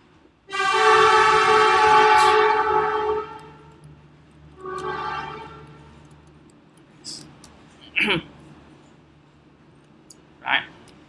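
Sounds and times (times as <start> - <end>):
loud horn blasts: 0.5 - 3.8, 4.6 - 6.0.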